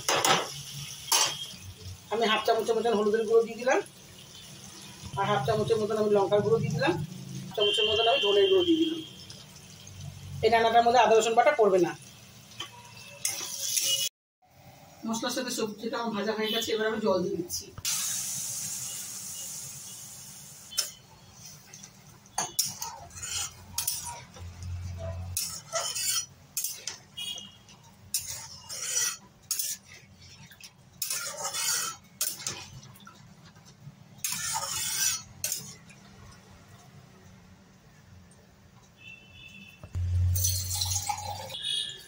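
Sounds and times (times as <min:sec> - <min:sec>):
metal spatula scraping a pan: 0:00.0 - 0:01.6, 0:12.6 - 0:14.1, 0:20.7 - 0:32.9, 0:34.1 - 0:35.9
water hissing in hot pan: 0:00.0 - 0:14.1, 0:17.8 - 0:21.9, 0:28.1 - 0:30.4, 0:31.0 - 0:32.5, 0:34.2 - 0:35.7.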